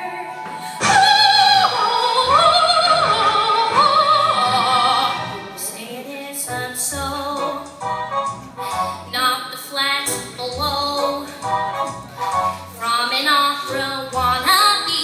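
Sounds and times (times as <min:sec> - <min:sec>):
girl singing operatic soprano: 0:00.0 - 0:05.1.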